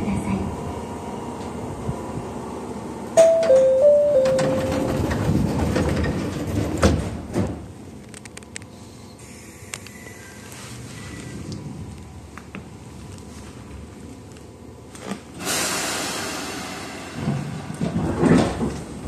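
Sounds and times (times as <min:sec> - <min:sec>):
train door chime: 0:03.2 - 0:05.2
sliding doors shutting with knocks: 0:03.2 - 0:07.7, 0:17.2 - 0:19.0
rush of air: 0:15.4 - 0:17.7.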